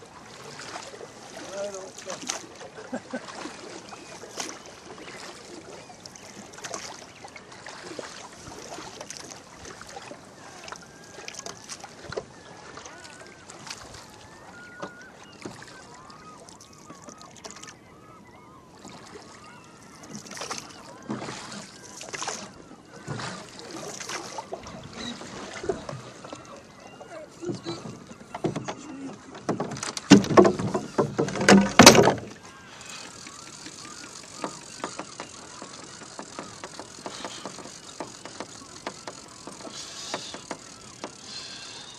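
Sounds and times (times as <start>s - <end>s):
oars splashing in water: 0.0s - 41.9s
water moving along hull: 0.0s - 41.9s.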